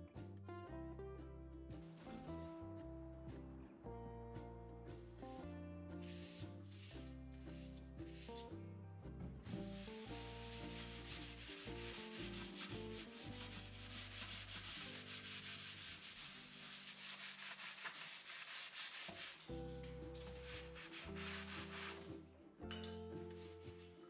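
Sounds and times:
sponge scrubbing a steel sink: 9.5s - 22.2s.

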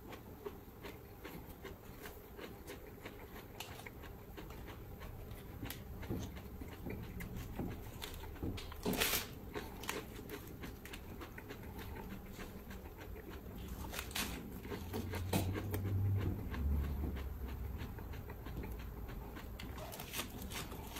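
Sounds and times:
chewing lettuce: 0.0s - 20.9s
lettuce leaves snapping: 13.7s - 14.4s, 19.9s - 20.9s.

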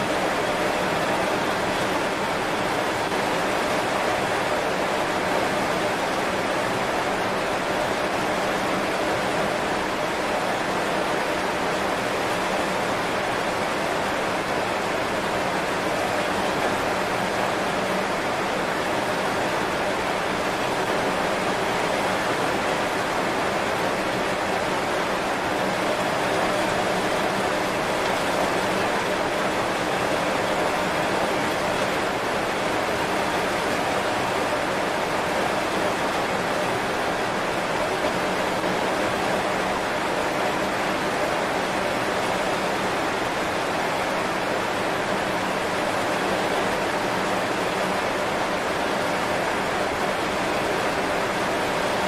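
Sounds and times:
heavy rain on leaves: 0.0s - 52.0s.

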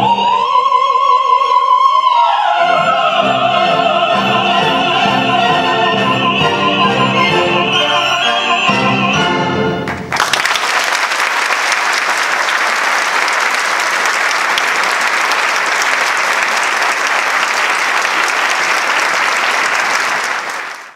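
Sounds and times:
orchestra and opera singers: 0.0s - 9.9s
audience applause: 9.8s - 20.9s.

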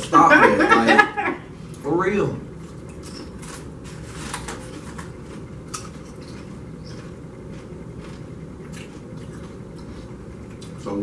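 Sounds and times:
low background hum: 0.0s - 11.0s
tortilla chips crunching: 2.8s - 9.9s.

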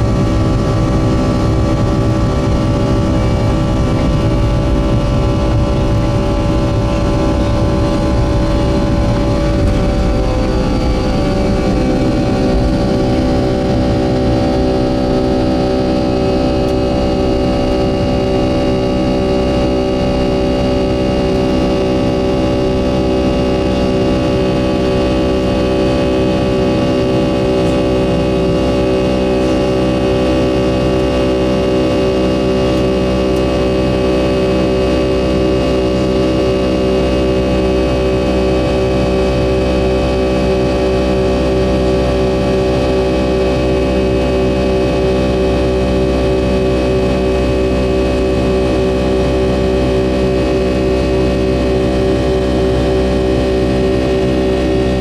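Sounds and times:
runway rumble: 0.0s - 30.4s
jet engines at takeoff thrust: 0.0s - 55.0s.

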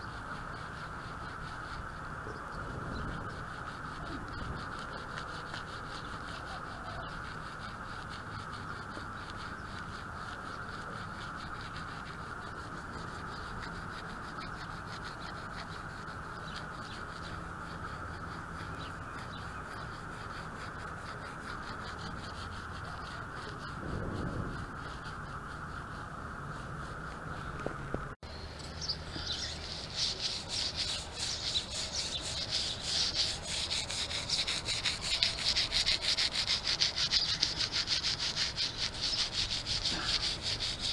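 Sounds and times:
bristle brush scrubbing: 0.0s - 27.6s, 28.6s - 40.9s.

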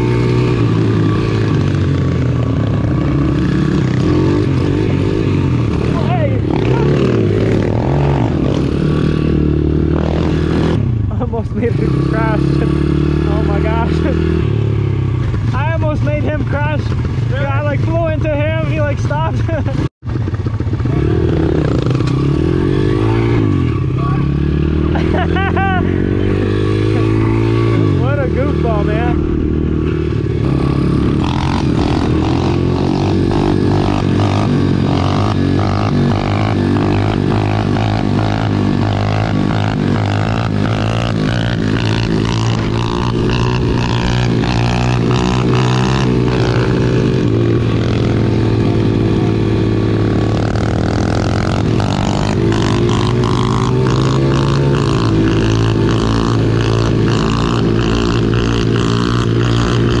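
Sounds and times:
small motorbike engine revving: 19.5s - 60.0s.

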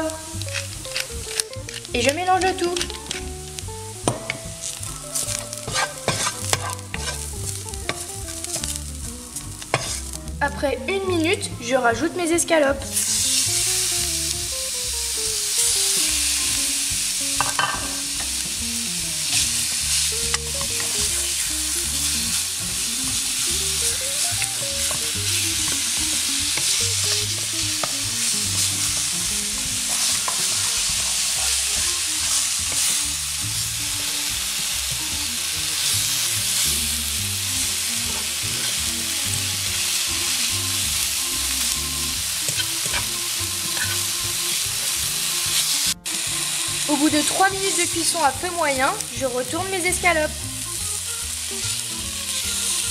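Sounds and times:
meat sizzling in a frying pan: 0.0s - 52.9s
utensils scraping a pan: 0.4s - 3.4s, 4.2s - 10.3s, 19.2s - 21.5s, 23.4s - 33.1s, 38.0s - 40.5s, 41.1s - 48.3s.

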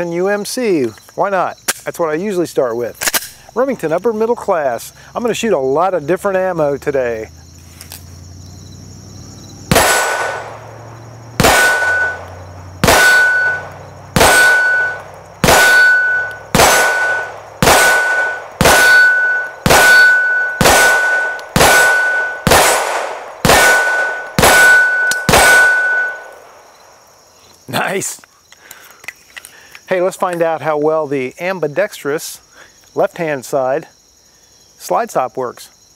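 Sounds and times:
pistol shots: 9.7s - 26.5s
steel target plate ringing: 11.4s - 22.8s, 23.6s - 26.4s.

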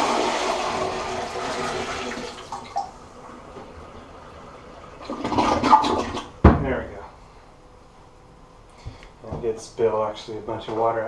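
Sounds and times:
water pouring into toilet bowl: 0.0s - 3.0s, 3.9s - 6.3s
toilet flushing: 0.0s - 6.4s.

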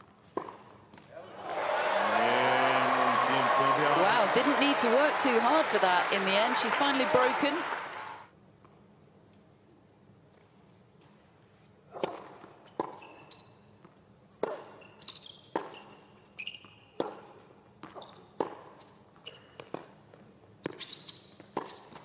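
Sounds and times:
tennis ball struck by racket: 0.3s - 0.7s
tennis ball bouncing on court: 0.3s - 1.1s, 15.5s - 16.0s, 17.0s - 18.9s, 19.6s - 20.8s, 21.4s - 22.0s
shoes squeaking on court: 12.6s - 22.0s.

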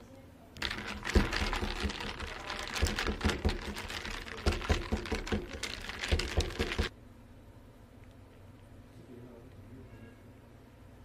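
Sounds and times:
metal spoon rattling in plastic cup: 0.6s - 6.9s.

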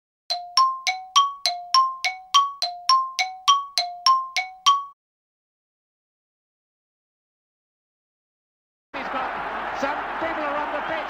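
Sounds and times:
two-tone bell chime: 0.3s - 5.0s.

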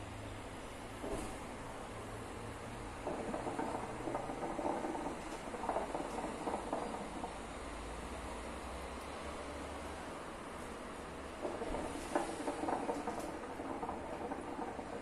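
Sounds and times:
hookah water bubbling: 2.9s - 7.5s, 11.4s - 15.0s.

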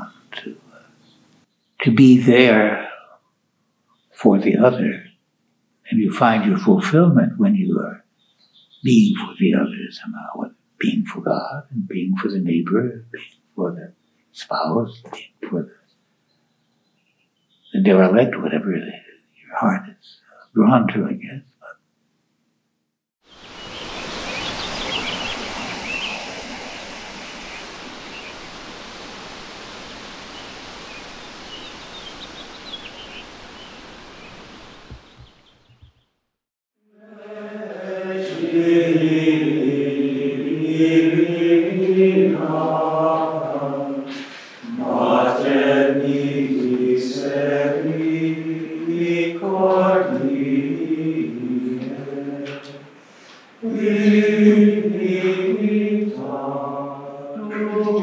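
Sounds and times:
outdoor ambience hiss: 0.0s - 36.3s, 37.0s - 58.0s
men's choir singing plainchant: 37.0s - 53.0s, 53.6s - 58.0s.

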